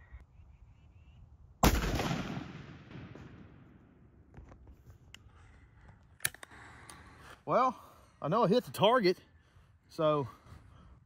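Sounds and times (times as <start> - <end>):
shotgun blast with echo: 1.6 - 3.6.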